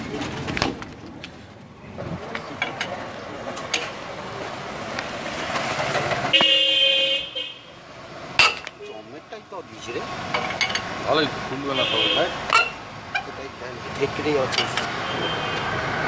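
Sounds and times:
street noise: 0.0 - 16.0
vehicle horn: 6.3 - 7.8, 11.7 - 12.4, 15.0 - 15.8
lug wrench clinking on wheel nuts: 8.4 - 8.8, 10.3 - 10.9, 12.5 - 13.4.

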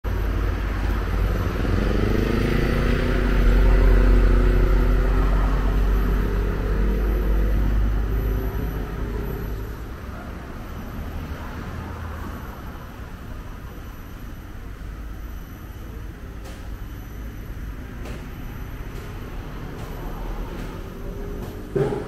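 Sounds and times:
quiet street traffic: 0.0 - 22.0
large vehicle engine passing: 0.1 - 9.8.

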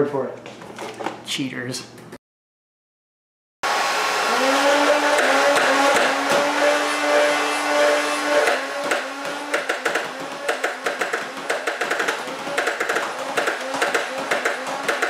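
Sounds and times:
rapid clicks of balls feeding: 8.8 - 15.0.

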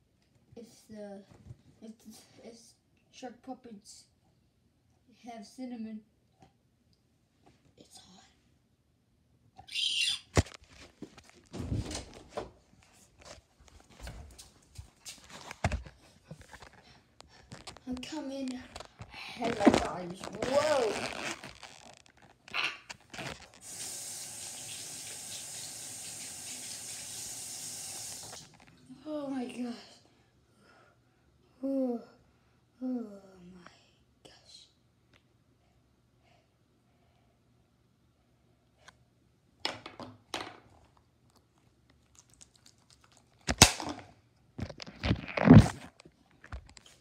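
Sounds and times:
bumps and rubbing: 10.3 - 23.6, 44.6 - 46.7
sink tap running water: 23.6 - 28.5.

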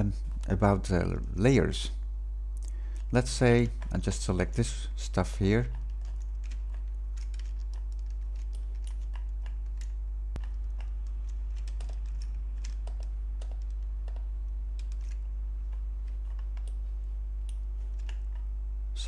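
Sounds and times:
low electrical hum: 0.0 - 19.0
keyboard keys and mouse clicking: 5.6 - 16.8, 17.4 - 18.5.

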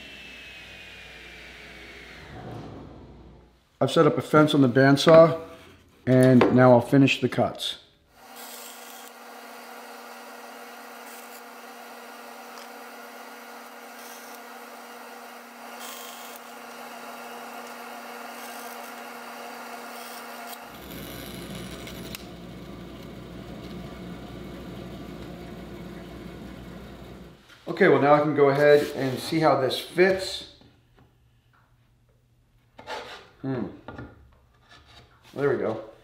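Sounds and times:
bandsaw humming: 8.2 - 27.4.

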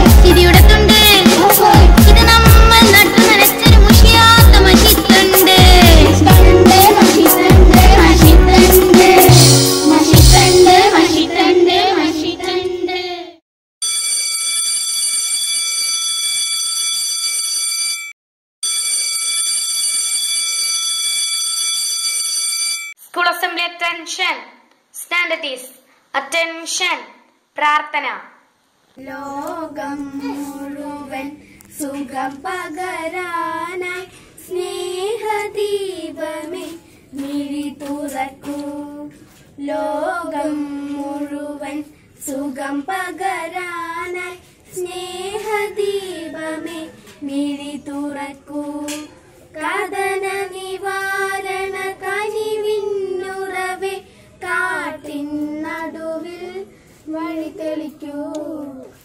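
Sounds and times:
girls singing together: 0.0 - 13.4, 29.0 - 59.0.

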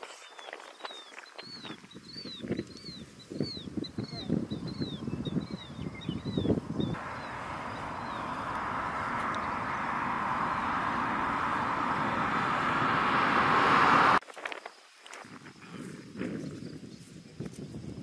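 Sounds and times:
vehicle tyre and road noise: 6.9 - 14.2.

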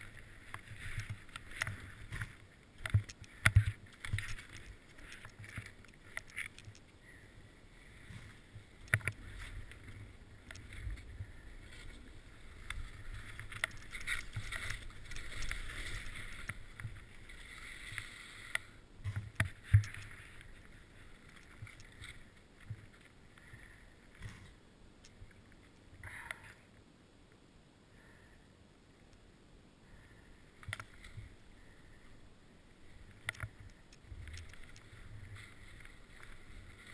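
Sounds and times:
skis sliding over snow: 0.0 - 24.6, 33.0 - 36.9.

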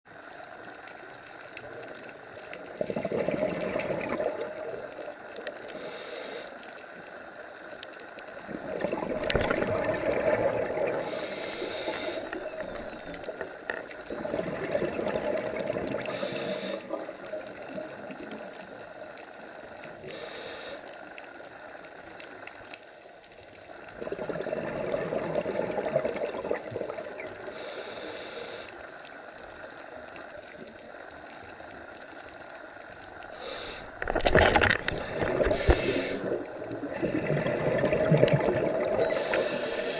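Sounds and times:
bubbling exhaled air underwater: 2.5 - 5.2, 8.3 - 18.9, 23.8 - 27.8, 33.3 - 39.9
regulator inhale hiss: 5.6 - 7.0, 10.9 - 12.5, 16.0 - 17.1, 19.9 - 21.3, 27.4 - 29.0, 33.3 - 34.0, 35.0 - 37.1, 39.1 - 39.9.

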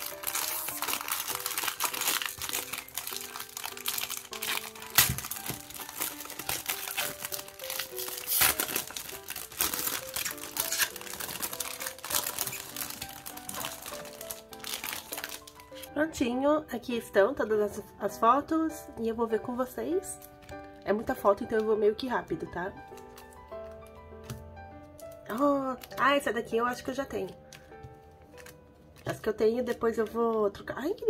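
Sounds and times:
plastic wrapping crinkling: 0.0 - 16.0, 19.9 - 30.3
background music melody: 0.0 - 31.0.

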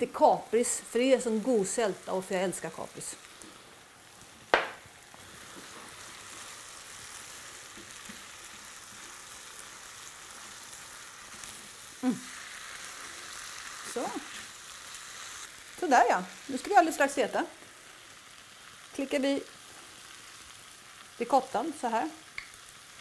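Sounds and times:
pasta sizzling in frying pan: 0.0 - 23.0
sharp knock: 4.5 - 4.8.

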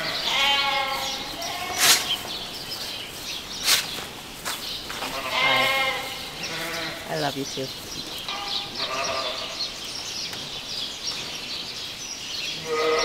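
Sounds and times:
ewe bleating: 0.0 - 2.2, 5.0 - 7.2, 8.3 - 9.6, 12.6 - 13.0.

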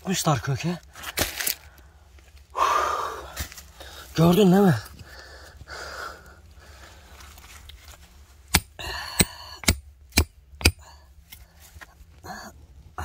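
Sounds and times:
hand tool striking stone: 8.5 - 10.8.

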